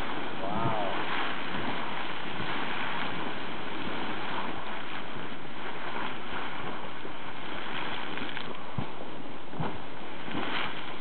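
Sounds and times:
geyser rushing water and steam: 0.0s - 11.0s.

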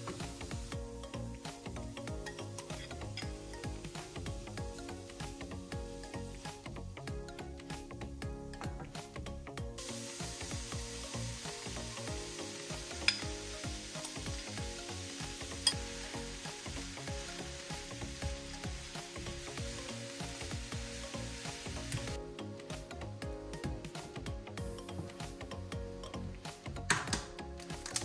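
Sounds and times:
vegetables sizzling in frying pan: 0.0s - 0.9s, 9.8s - 22.2s
soft background music: 0.0s - 28.0s.

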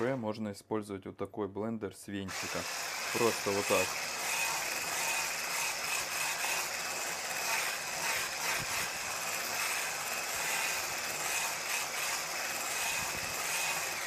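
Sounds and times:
immersion blender motor whine: 2.3s - 14.0s.

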